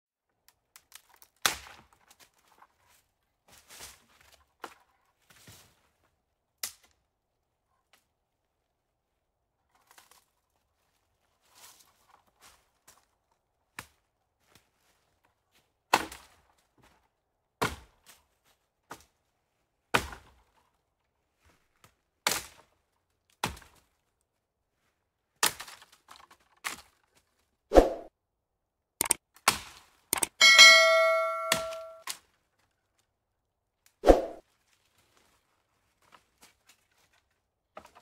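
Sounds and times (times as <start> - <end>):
quick clicks: 30.2 - 30.4.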